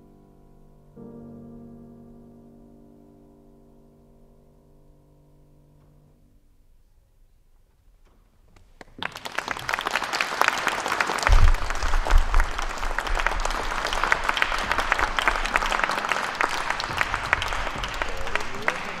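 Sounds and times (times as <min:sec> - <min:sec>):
audience applause: 0:08.6 - 0:19.0.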